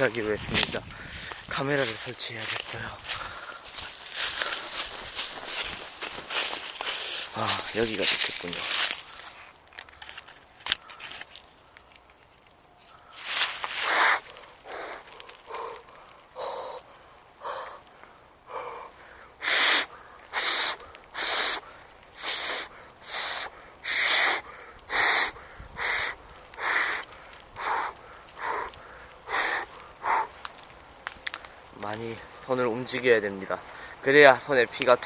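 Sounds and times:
man breathing hard: 0.8s - 1.5s, 3.0s - 7.7s, 12.9s - 30.4s, 33.6s - 34.0s.

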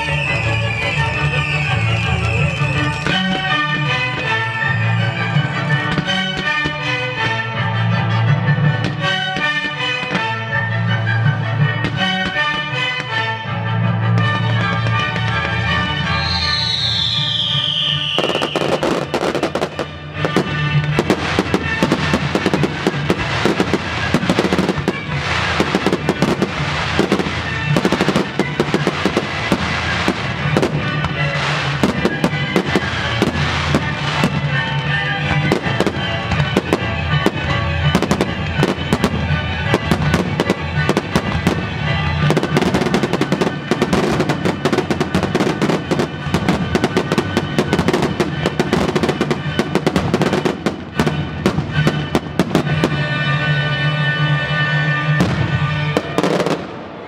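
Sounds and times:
fireworks banging and crackling: 0.0s - 57.0s
loud music: 0.0s - 57.0s.

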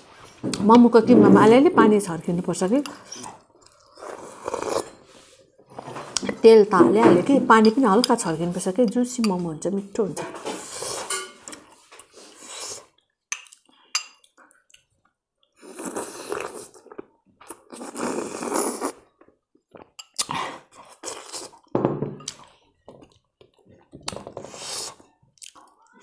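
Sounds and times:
person slurping soup: 2.9s - 6.2s, 12.1s - 13.0s, 15.6s - 16.8s, 17.6s - 19.1s, 24.2s - 25.0s.

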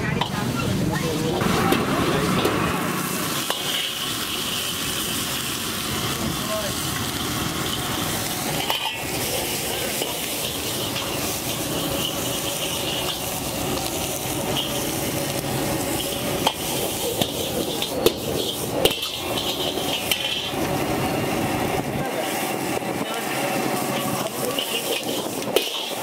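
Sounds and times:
ladle scraping wok: 0.0s - 26.0s
vegetables sizzling in wok: 0.0s - 26.0s
ladle clinking against wok: 8.6s - 13.3s, 24.4s - 26.0s.

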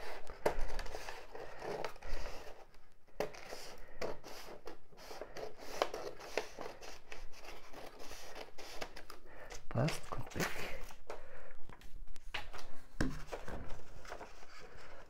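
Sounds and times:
paper rustling: 0.0s - 15.0s
scissors snipping paper: 3.2s - 9.2s.

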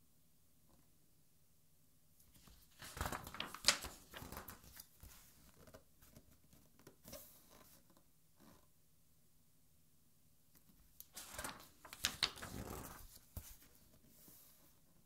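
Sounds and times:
paper page rustling: 2.3s - 6.2s, 11.0s - 14.6s.

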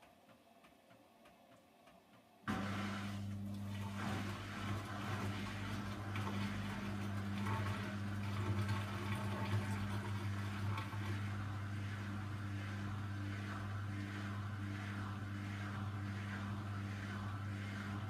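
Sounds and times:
washing machine motor hum: 0.1s - 18.0s
water sloshing in drum: 2.5s - 11.2s.

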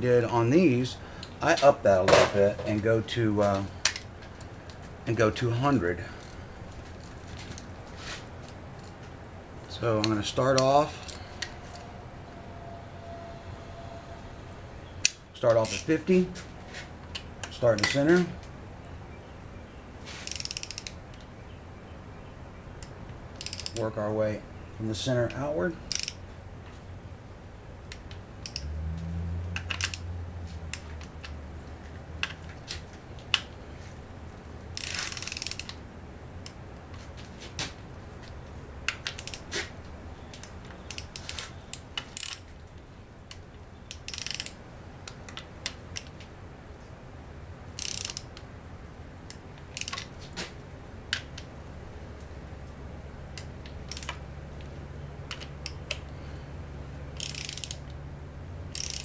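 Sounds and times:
low hum: 8.8s - 15.4s
torque wrench clicking: 20.2s - 21.3s, 22.8s - 23.8s, 25.9s - 26.2s, 27.9s - 28.7s, 29.6s - 30.1s, 34.8s - 35.8s, 38.9s - 39.5s, 40.4s - 42.4s, 43.3s - 44.6s, 47.8s - 48.4s, 49.3s - 50.0s, 53.4s - 54.2s, 57.2s - 58.0s, 58.7s - 59.0s.

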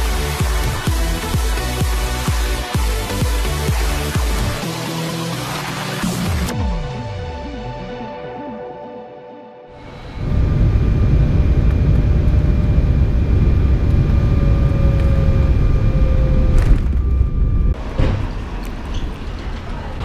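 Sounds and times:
faint engine whine: 9.8s - 20.0s
jet airliner cabin rumble: 9.8s - 20.0s.

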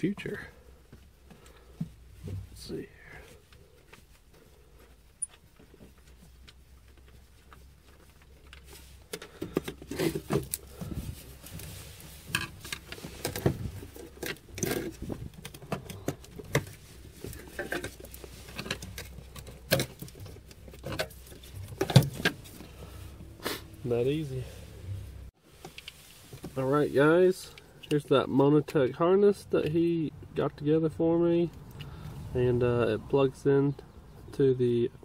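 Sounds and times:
metal parts knocking and rattling: 12.3s - 22.6s.

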